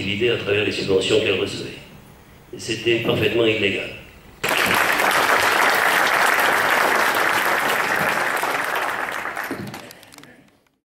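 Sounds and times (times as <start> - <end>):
audience applauding: 4.4 - 10.6.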